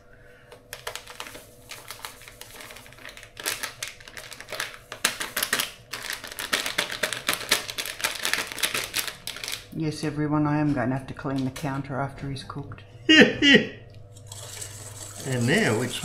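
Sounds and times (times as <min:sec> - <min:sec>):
plastic packet crinkling: 0:00.7 - 0:09.8.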